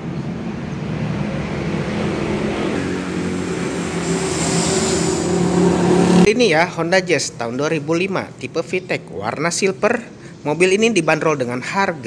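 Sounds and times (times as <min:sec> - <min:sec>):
vehicle engine humming: 0:00.0 - 0:07.0.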